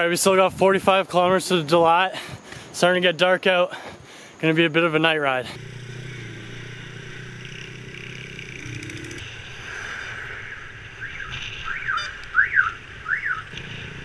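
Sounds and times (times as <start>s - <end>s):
motorbike riding hum: 5.3s - 14.0s.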